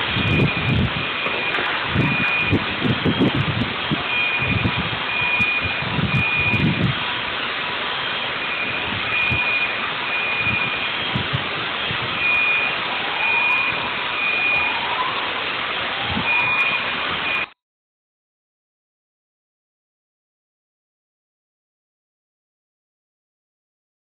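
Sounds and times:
steady rushing roar: 0:00.0 - 0:17.6
electronic alarm beeping: 0:00.1 - 0:06.9, 0:08.1 - 0:14.8, 0:16.2 - 0:17.6
rising whoops: 0:13.0 - 0:15.4.

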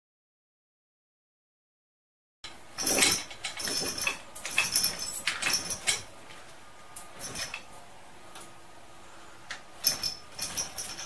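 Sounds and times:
chain hoist chain clinking: 0:02.5 - 0:07.9, 0:09.8 - 0:11.0.

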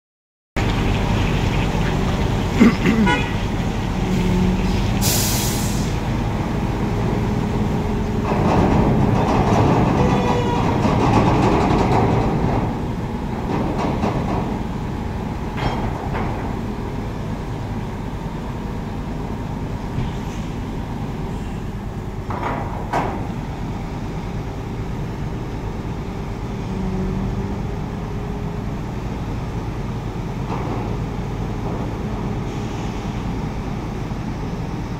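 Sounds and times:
diesel engine running: 0:00.6 - 0:34.9
air hiss: 0:04.7 - 0:06.1, 0:32.4 - 0:33.3.

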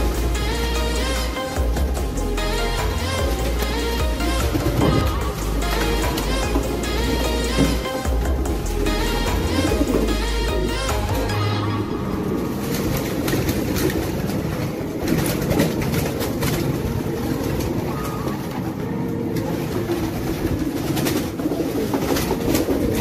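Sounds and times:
pigeons cooing: 0:00.0 - 0:23.0.

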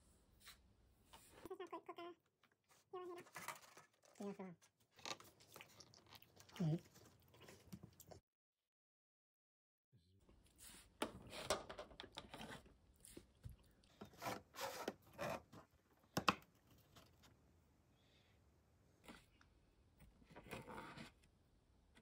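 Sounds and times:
fork scraping plastic container: 0:14.0 - 0:15.6, 0:20.3 - 0:21.3.

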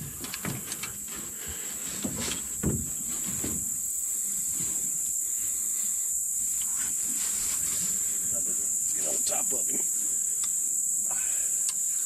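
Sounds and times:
insects chorus: 0:00.0 - 0:12.0
soft knocks: 0:02.0 - 0:03.7.

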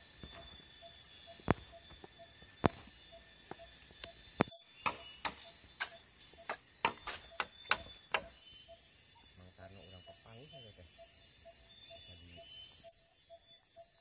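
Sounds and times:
machete chopping bamboo: 0:04.8 - 0:08.3.

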